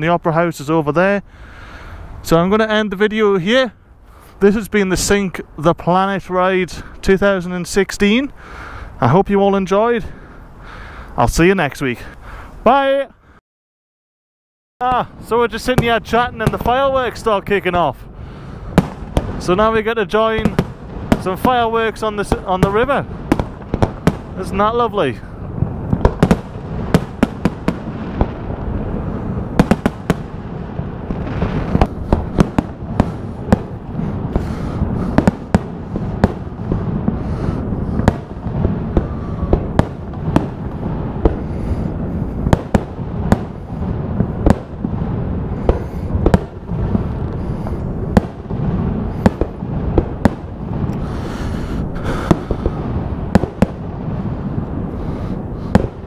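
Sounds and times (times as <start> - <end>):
fireworks bangs: 14.8 - 56.0
hissing crackle of fireworks: 14.8 - 56.0
low rumble: 22.3 - 56.0.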